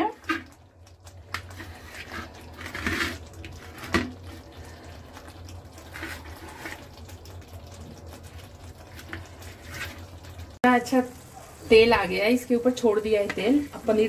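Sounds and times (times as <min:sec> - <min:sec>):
soft watery hissing: 0:00.0 - 0:14.0.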